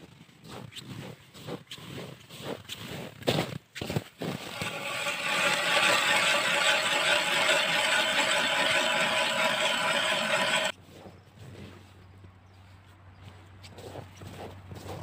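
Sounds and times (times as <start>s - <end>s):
ice auger boring through ice: 4.2s - 10.8s.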